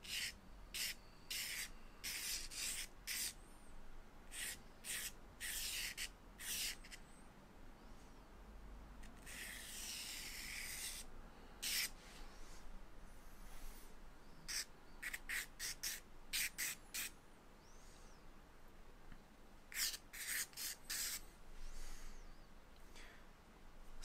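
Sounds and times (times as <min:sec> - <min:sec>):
charcoal strokes on paper: 0:19.7 - 0:21.2.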